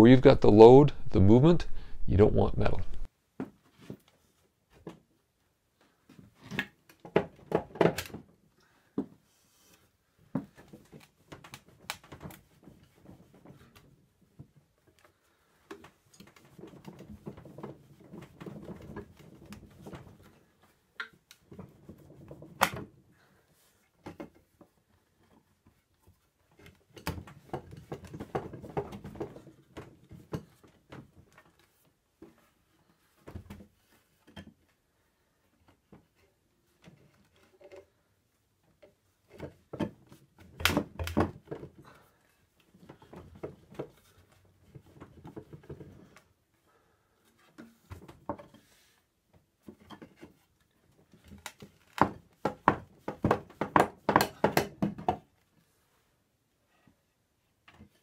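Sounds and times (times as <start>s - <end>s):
sharp wooden knocks: 52.0s - 55.2s.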